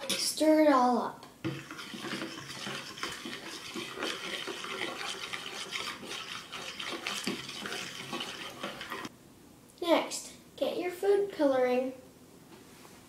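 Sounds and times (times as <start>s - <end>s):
liquid swishing in bowl: 1.5s - 9.1s
spoon scraping plastic bowl: 1.5s - 9.1s.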